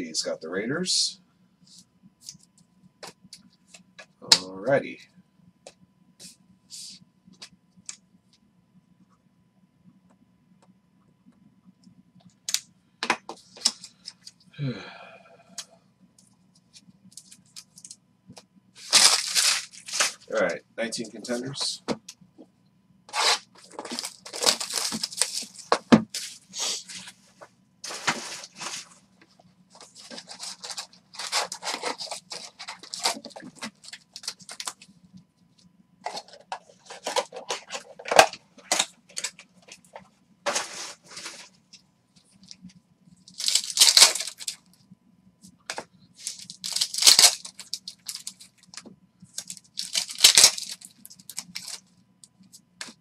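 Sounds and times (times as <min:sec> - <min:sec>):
card packs tearing and crinkling: 0:18.8 - 0:21.4, 0:23.1 - 0:26.8, 0:29.8 - 0:34.8, 0:43.3 - 0:44.6, 0:46.2 - 0:48.7, 0:49.3 - 0:51.8.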